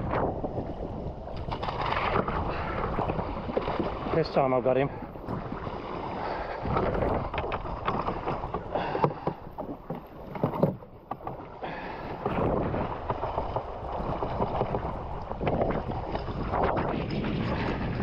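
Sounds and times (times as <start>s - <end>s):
water slapping against hull: 0.0s - 18.0s
wind buffeting microphone: 0.0s - 18.0s
short knocks and splashes: 1.3s - 4.5s, 6.6s - 11.5s.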